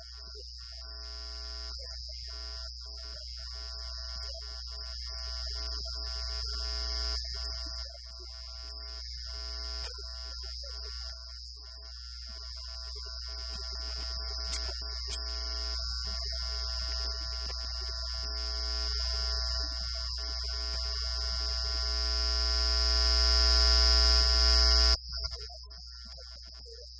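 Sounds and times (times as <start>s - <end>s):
fixed high electrical tones: 8.6s - 26.9s.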